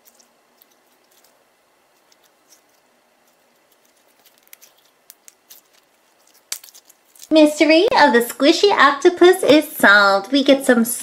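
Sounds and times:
slime squelching: 0.0s - 7.4s
small wet clicks: 2.0s - 7.3s.

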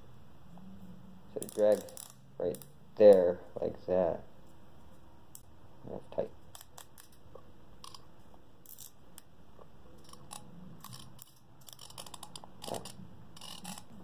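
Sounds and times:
fishing reel clicking and ratcheting: 1.4s - 2.7s, 10.0s - 13.9s.

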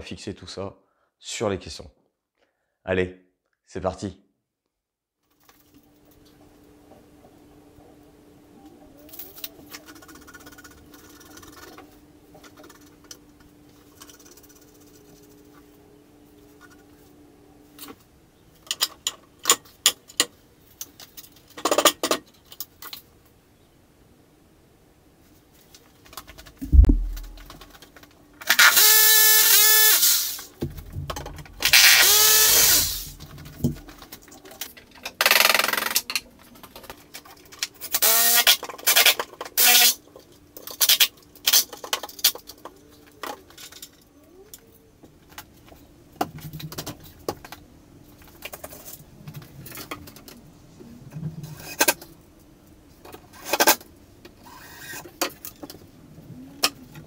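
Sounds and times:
power drill driving screws: 28.5s - 30.4s, 31.6s - 33.1s, 37.9s - 38.6s
parts knocking and clattering: 30.6s - 32.0s, 33.2s - 35.3s.

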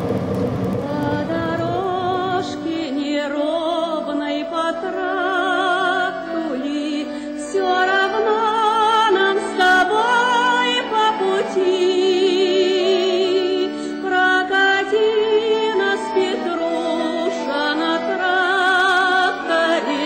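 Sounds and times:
instrumental accompaniment: 0.0s - 20.0s
person singing with vibrato: 0.8s - 20.0s.

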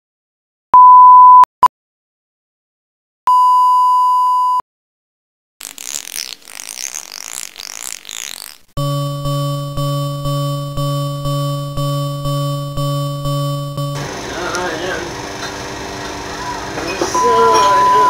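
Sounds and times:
pure test tone beep: 0.8s - 1.5s, 3.3s - 4.6s, 17.0s - 18.0s
buzzy test tone: 5.6s - 18.0s.

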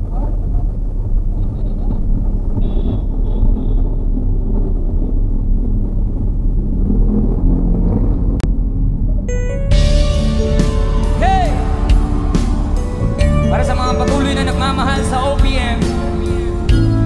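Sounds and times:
car engine and tyres rumbling: 0.0s - 17.0s.

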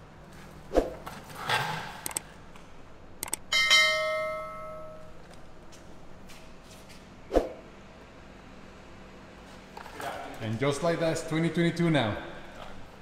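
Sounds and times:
short clicks: 3.2s - 3.5s.

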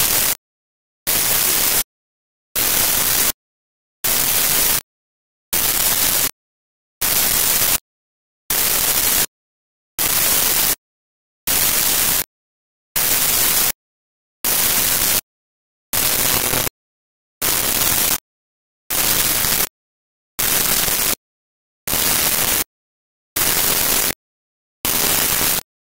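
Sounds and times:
static hiss bursts: 16.0s - 16.7s, 24.9s - 25.6s.

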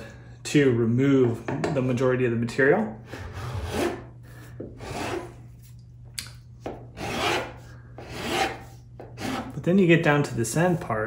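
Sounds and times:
metal file rasping: 3.2s - 4.1s, 4.8s - 5.3s, 7.0s - 9.6s.

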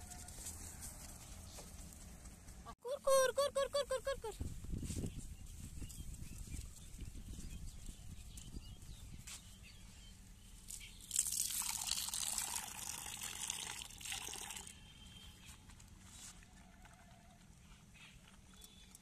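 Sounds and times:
liquid pouring: 11.0s - 14.7s.

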